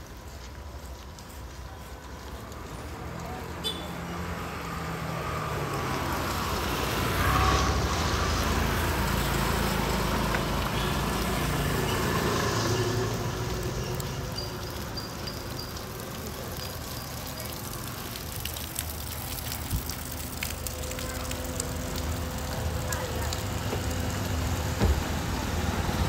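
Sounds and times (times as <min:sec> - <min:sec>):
vehicle passing by: 0:02.8 - 0:14.3.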